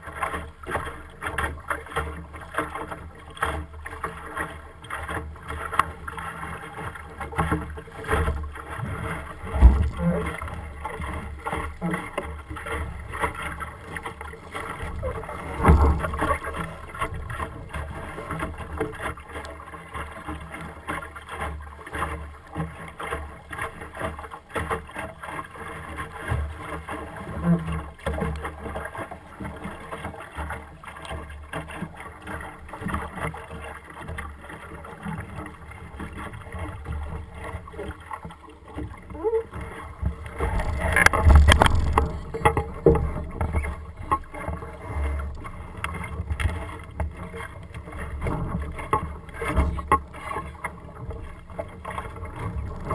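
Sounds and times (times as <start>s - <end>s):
water washing against hull: 0.0s - 52.9s
low rumble: 9.4s - 10.6s, 40.1s - 44.2s
thump: 9.6s - 10.2s, 40.4s - 43.0s
knocks and rattles: 40.4s - 44.3s.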